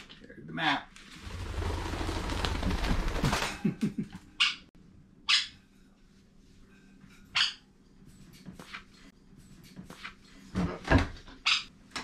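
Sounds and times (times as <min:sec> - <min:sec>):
parrot squawking: 0:04.4 - 0:05.6, 0:07.3 - 0:07.7, 0:11.4 - 0:11.7.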